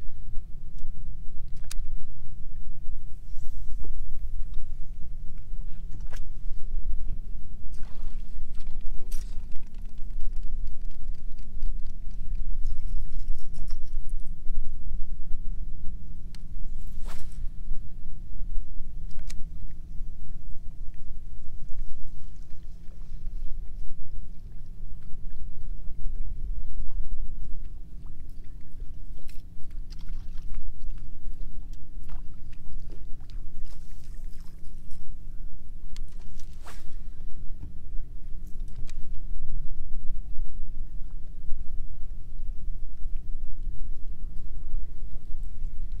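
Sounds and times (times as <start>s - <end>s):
water lapping against boat hull: 0.0s - 14.4s, 20.7s - 39.7s
faint steady hum: 0.0s - 46.0s
low rumble: 0.0s - 46.0s
wind on microphone: 0.0s - 46.0s
fishing rod cast whoosh: 16.8s - 17.5s.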